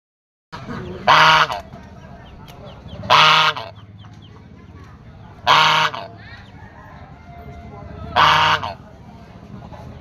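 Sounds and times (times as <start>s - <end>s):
goose honking: 0.6s - 3.9s, 5.4s - 6.3s, 8.1s - 8.8s.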